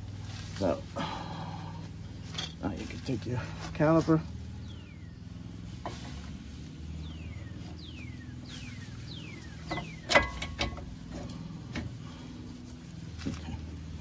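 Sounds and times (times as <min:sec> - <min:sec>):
steady low hum: 0:00.0 - 0:14.0
metal clanks and clicks: 0:09.7 - 0:12.0.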